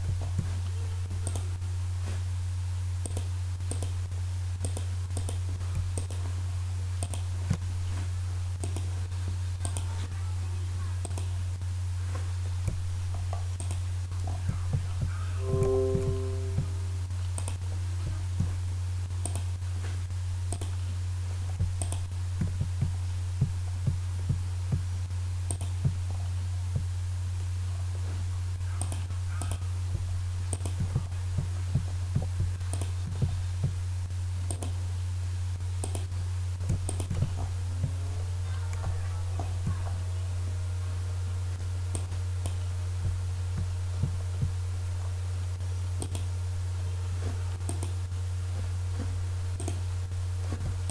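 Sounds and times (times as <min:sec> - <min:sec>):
low electrical hum: 0:00.0 - 0:50.9
computer mouse clicking: 0:01.2 - 0:01.5, 0:03.0 - 0:04.0, 0:07.0 - 0:07.3, 0:08.6 - 0:08.9, 0:09.6 - 0:09.9, 0:13.6 - 0:13.8, 0:19.2 - 0:19.5, 0:21.8 - 0:22.0, 0:25.5 - 0:25.7, 0:30.5 - 0:30.8, 0:32.7 - 0:32.9, 0:34.5 - 0:34.8, 0:35.8 - 0:36.1, 0:46.0 - 0:46.3, 0:47.7 - 0:48.0, 0:49.6 - 0:49.8.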